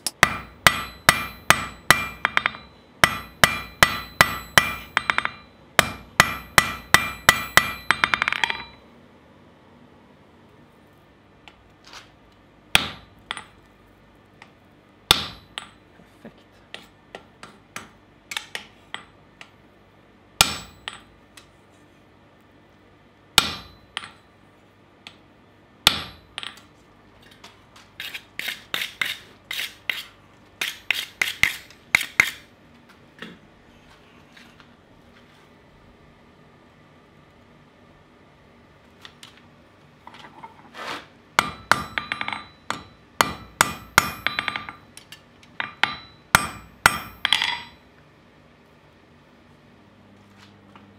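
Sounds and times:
hammer striking steel on anvil: 0.0s - 8.8s, 12.8s - 13.6s, 15.1s - 15.8s, 20.4s - 21.1s, 23.4s - 24.2s, 25.9s - 26.6s, 41.4s - 44.9s, 45.6s - 47.8s.

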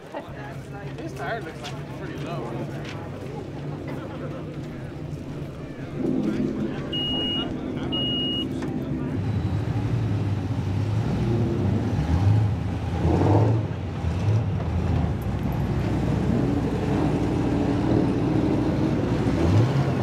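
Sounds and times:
cars driving past accelerating: 1.5s - 20.0s.

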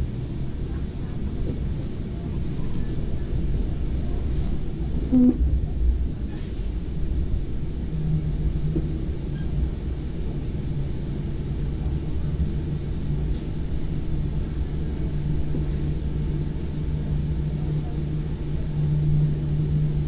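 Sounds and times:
steady low hum: 0.0s - 20.0s
train coach running rumble: 0.0s - 20.0s.

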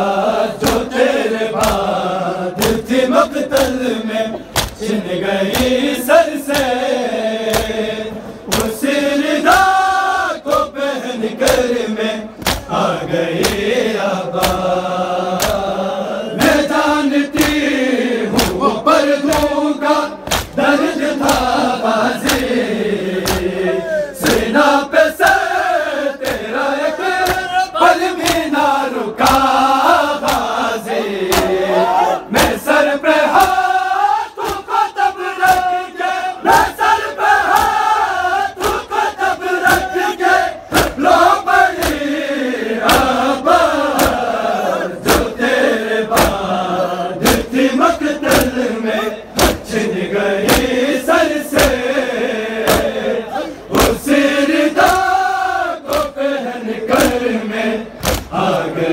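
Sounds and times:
crowd of men chanting: 0.0s - 58.9s
hands slapping chests: 0.6s - 1.0s, 1.6s - 2.0s, 2.6s - 2.9s, 3.5s - 4.9s, 5.5s - 6.9s, 7.5s - 7.8s, 8.5s - 8.8s, 11.4s - 11.8s, 12.4s - 14.8s, 15.4s - 15.8s, 16.4s - 21.6s, 22.2s - 22.6s, 23.2s - 23.6s, 24.2s - 24.5s, 26.2s - 28.6s, 29.2s - 30.6s, 31.3s - 35.8s, 36.5s - 37.9s, 38.6s - 40.1s, 40.7s - 42.2s, 42.8s - 44.3s, 45.0s - 46.4s, 47.2s - 48.6s, 49.3s - 49.8s, 50.4s - 50.8s, 51.5s - 51.9s, 52.6s - 53.0s, 53.7s - 54.1s, 54.7s - 55.2s, 55.8s - 56.2s, 56.9s - 57.3s, 58.0s - 58.6s.

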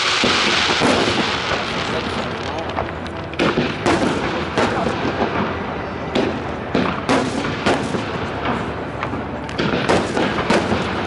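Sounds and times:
firework shells bursting: 0.0s - 5.4s.

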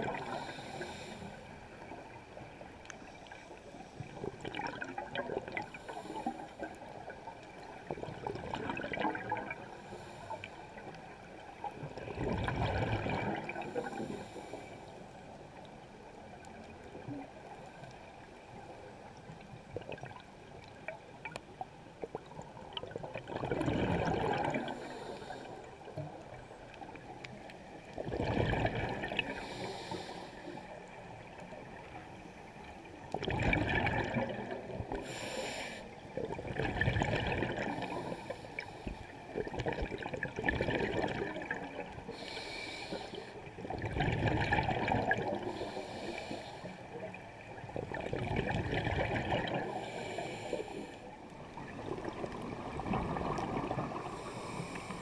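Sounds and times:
underwater exhaled bubbles rushing: 0.0s - 1.1s, 3.3s - 9.9s, 10.8s - 14.4s, 19.7s - 21.4s, 22.1s - 27.0s, 27.9s - 30.0s, 33.1s - 35.3s, 36.1s - 38.4s, 39.3s - 50.5s, 51.4s - 55.0s.

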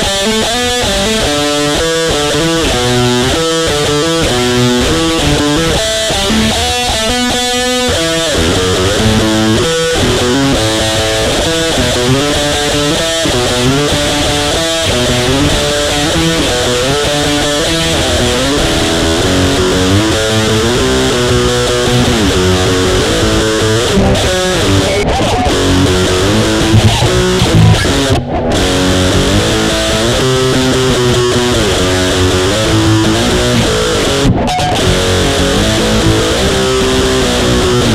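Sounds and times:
electric guitar with slides: 0.0s - 37.9s
low bass line: 8.2s - 10.9s, 18.1s - 24.9s, 25.6s - 34.0s.

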